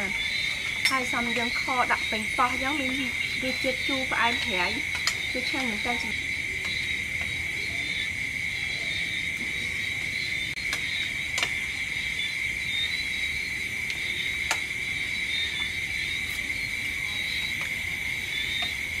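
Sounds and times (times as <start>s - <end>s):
night insects trilling: 0.0s - 19.0s
spoons clicking against plates: 4.9s - 6.1s.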